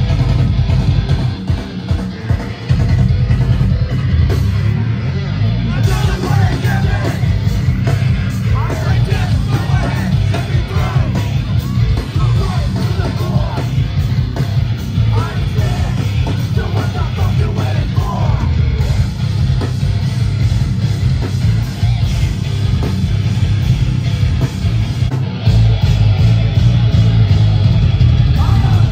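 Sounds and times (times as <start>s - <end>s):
punk band playing live: 0.0s - 28.9s
person yelling vocals: 28.4s - 28.9s.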